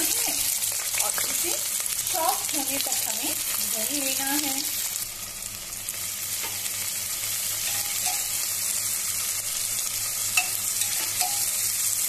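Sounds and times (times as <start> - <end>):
onion sizzling in hot oil: 0.0 - 12.0
metal spatula scraping pot: 7.6 - 8.5.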